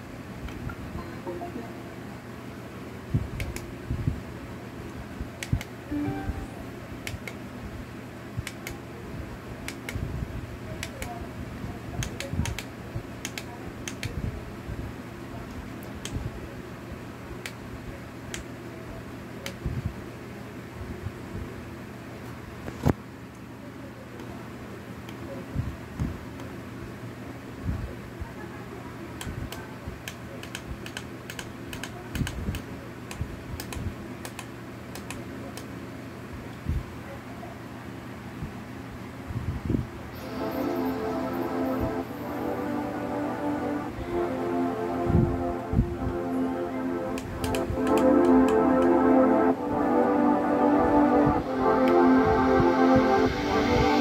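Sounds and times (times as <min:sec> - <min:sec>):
steady low hum: 0:40.0 - 0:54.0
button clicks: 0:47.1 - 0:49.0.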